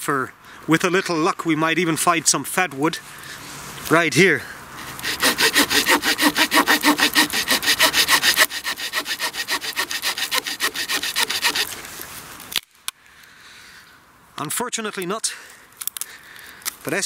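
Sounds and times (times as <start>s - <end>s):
small saw cutting wood: 4.8s - 11.8s.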